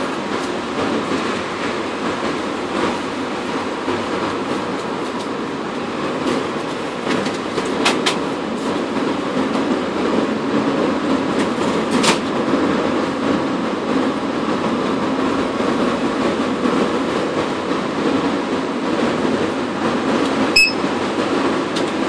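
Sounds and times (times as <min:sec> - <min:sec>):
loud mechanical rumble: 0:00.0 - 0:22.0.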